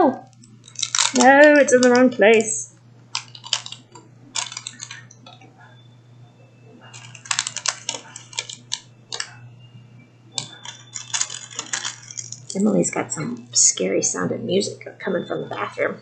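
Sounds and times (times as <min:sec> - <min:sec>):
low steady hum: 0:00.0 - 0:16.0
plastic pieces clicking and rattling: 0:00.3 - 0:05.4, 0:06.9 - 0:09.4, 0:10.4 - 0:12.7.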